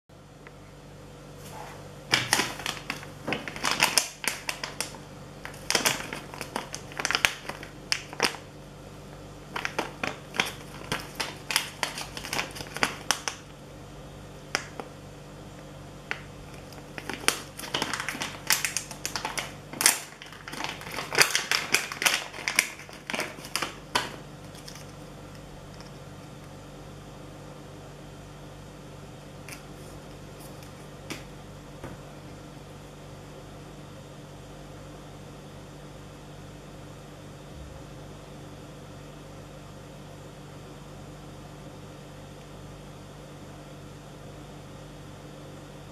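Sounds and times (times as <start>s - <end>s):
plastic packaging crinkling: 2.1s - 8.5s, 9.5s - 13.5s, 14.5s - 14.9s, 16.1s - 26.4s.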